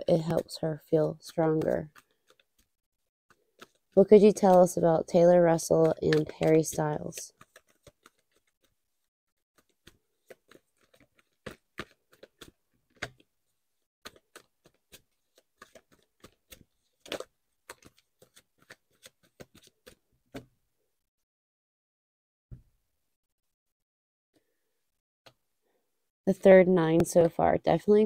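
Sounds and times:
cards being shuffled: 0:01.4 - 0:02.7, 0:03.3 - 0:08.8, 0:09.6 - 0:13.3, 0:14.0 - 0:20.5.

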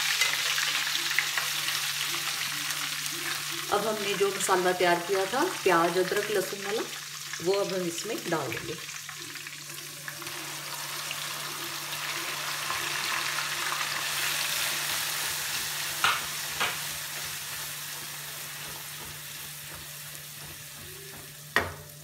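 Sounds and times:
paste sizzling in hot oil: 0:00.0 - 0:22.0
knocks against a pan: 0:16.0 - 0:16.8, 0:18.6 - 0:22.0.

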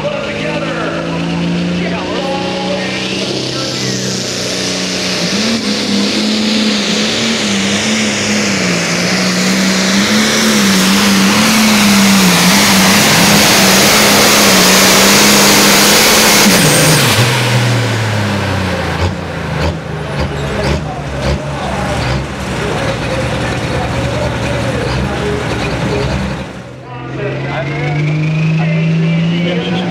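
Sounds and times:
tractor diesel engine at full throttle: 0:00.0 - 0:29.9.

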